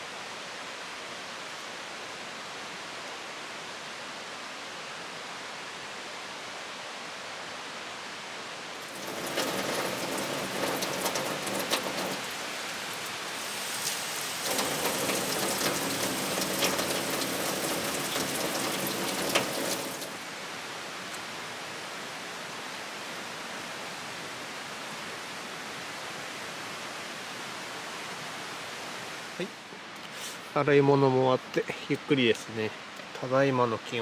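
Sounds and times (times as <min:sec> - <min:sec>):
tap water splashing onto dishes: 0:08.9 - 0:12.3, 0:13.8 - 0:20.2.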